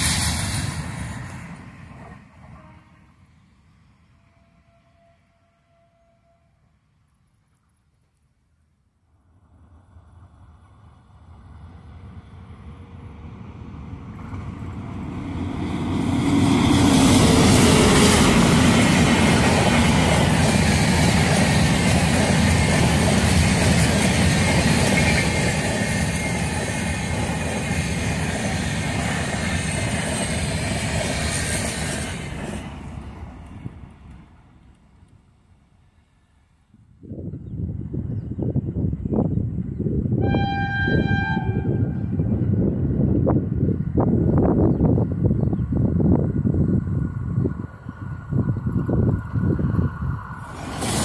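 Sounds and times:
locomotive whine: 9.3s - 35.9s, 38.8s - 51.0s.

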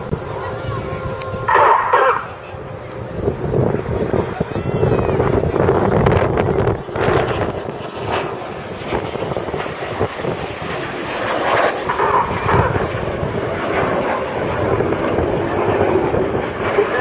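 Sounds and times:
jet engine rushing: 0.0s - 17.0s.

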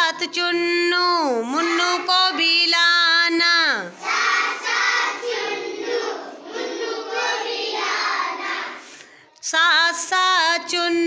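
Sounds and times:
children singing in unison: 3.9s - 9.0s.

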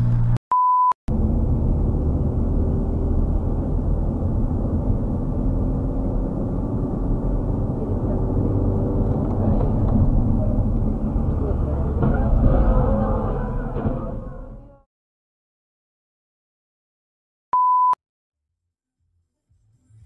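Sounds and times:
short beep: 0.5s - 1.0s, 17.6s - 18.0s
car driving at highway speed: 1.1s - 14.8s.

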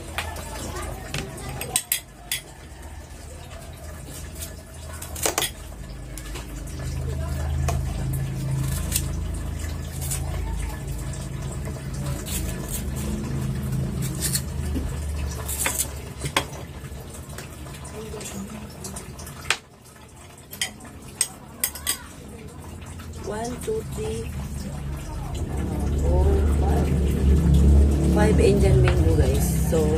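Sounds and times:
knife scraping against a plate: 15.4s - 16.0s.

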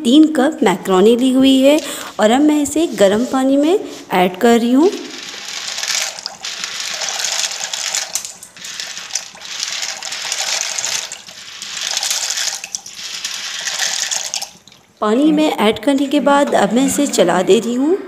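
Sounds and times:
pasta splashing into water: 5.0s - 14.9s.

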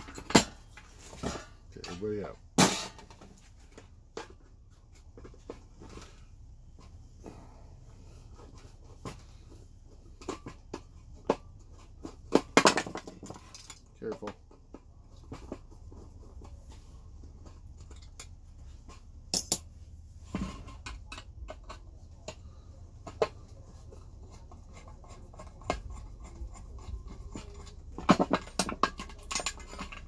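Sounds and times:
sharp metal clanks: 2.6s - 3.2s
screwdriver clicks and scrapes on metal: 20.5s - 30.0s.

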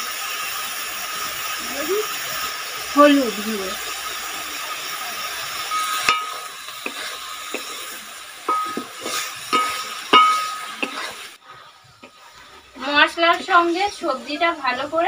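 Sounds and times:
vegetables sizzling in oil: 0.0s - 15.0s
spatula scraping pan: 5.6s - 15.0s
spatula clinking on pan: 5.7s - 7.6s, 8.5s - 11.1s.

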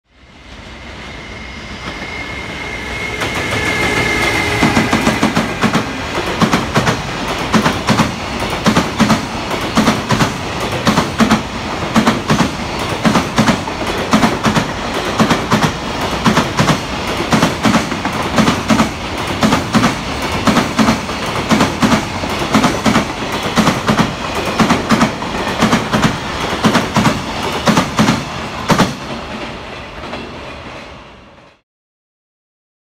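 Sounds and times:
high thin whine: 0.2s - 6.4s
train wheels clattering over rail joints: 4.6s - 29.5s.

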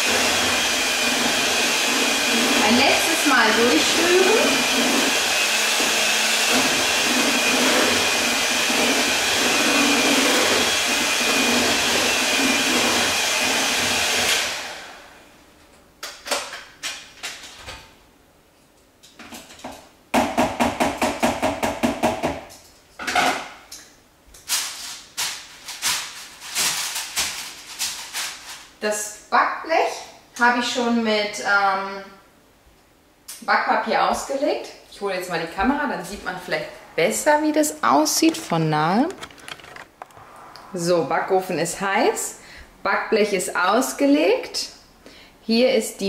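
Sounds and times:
electric hand mixer running: 0.0s - 15.2s.

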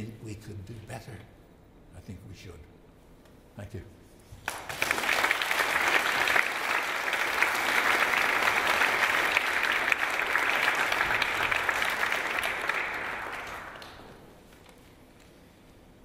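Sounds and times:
audience applauding: 4.4s - 14.4s.

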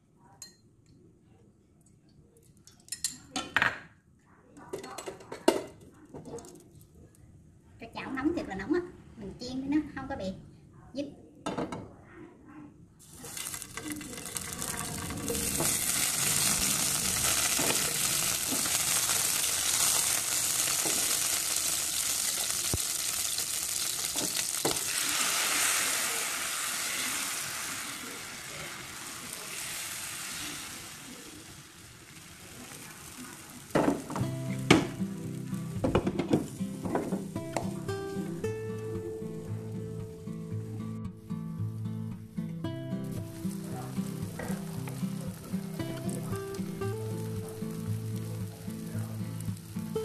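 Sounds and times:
batter sizzling in hot oil: 13.0s - 37.9s, 43.1s - 50.0s.

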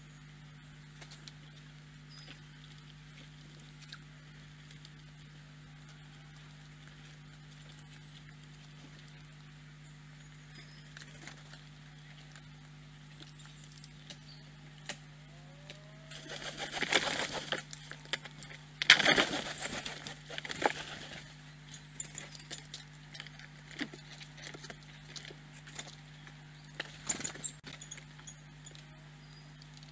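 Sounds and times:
faint steady hum: 0.0s - 29.9s
pigeon wings clattering: 16.1s - 21.3s.

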